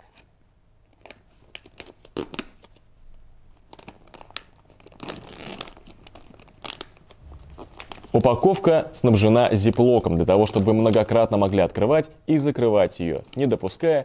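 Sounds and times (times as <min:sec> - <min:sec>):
snack pouch crinkling: 0:00.9 - 0:02.8, 0:03.5 - 0:11.8.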